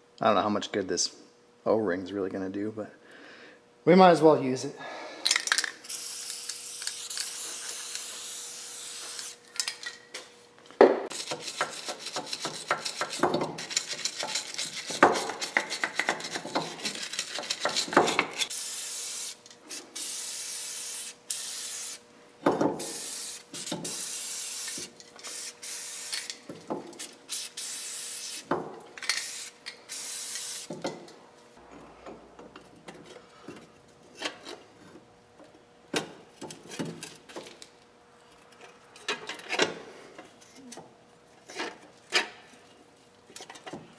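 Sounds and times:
aerosol spray can hissing: 0:05.8 - 0:09.4, 0:18.5 - 0:22.0, 0:22.8 - 0:26.3, 0:29.2 - 0:30.7.

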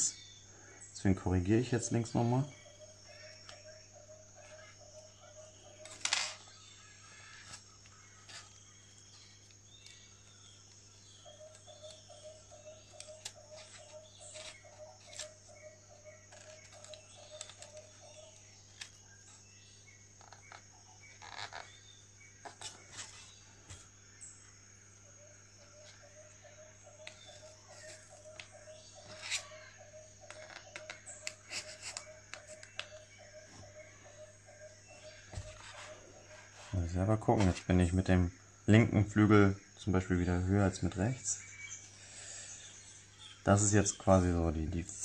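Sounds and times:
faint pulsing chirping: 0:00.0 - 0:45.0.

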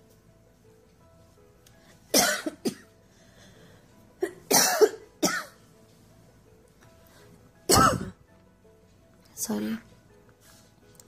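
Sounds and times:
person coughing: 0:02.1 - 0:02.8, 0:04.2 - 0:05.6, 0:07.7 - 0:08.2.

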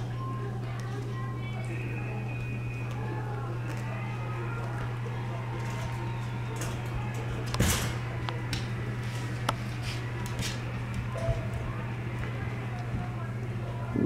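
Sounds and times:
steady low hum: 0:00.0 - 0:14.0
rustling scrape: 0:09.0 - 0:10.6.

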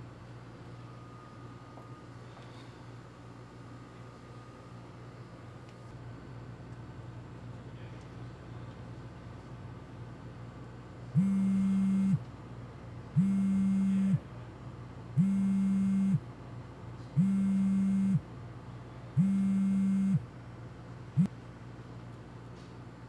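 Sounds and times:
phone vibrating buzzes: 0:11.2 - 0:12.2, 0:13.2 - 0:14.2, 0:15.2 - 0:16.2, 0:17.1 - 0:18.2, 0:19.2 - 0:20.2.

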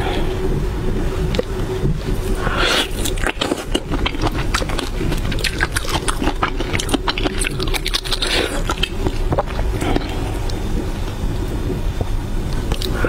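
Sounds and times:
shrimp shell crackling and peeling: 0:01.3 - 0:11.2
fingers squelching in sticky sauce: 0:02.2 - 0:11.2.

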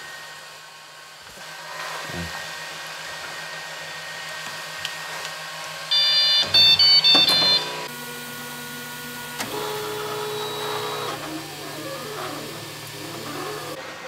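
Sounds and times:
printer motors whining: 0:02.0 - 0:14.0.

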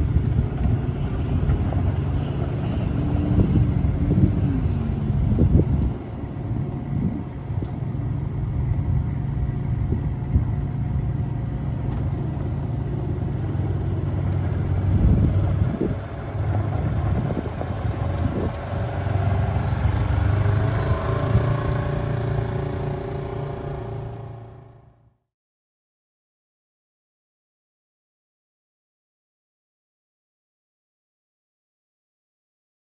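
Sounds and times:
engine whine climbing in pitch: 0:00.0 - 0:25.2
utility vehicle engine running: 0:00.0 - 0:25.2.

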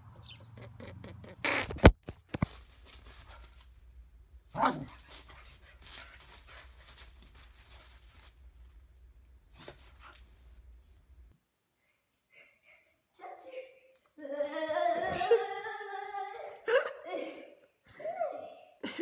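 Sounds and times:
brief rustle: 0:01.6 - 0:03.8
light scuffing: 0:02.2 - 0:03.8, 0:04.7 - 0:08.8.

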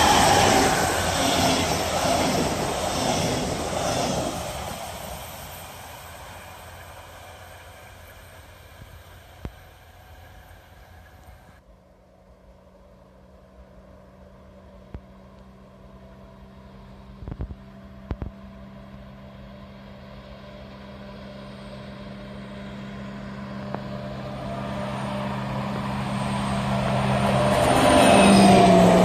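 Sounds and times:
locomotive engine drone: 0:00.0 - 0:29.0.

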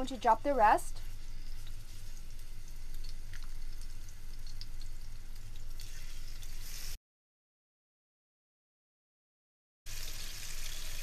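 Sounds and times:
chicken sizzling in hot oil: 0:00.0 - 0:07.0, 0:09.9 - 0:11.0.

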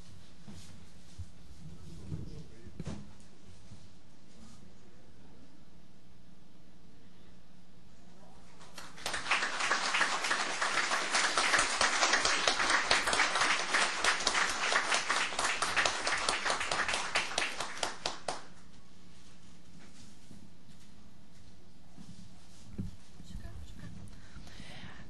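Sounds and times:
small group applauding: 0:08.6 - 0:18.6.

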